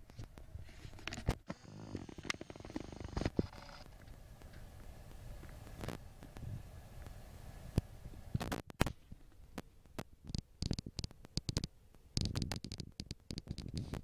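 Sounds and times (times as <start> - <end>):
camera handling clicks and rubbing: 0.1 - 1.4.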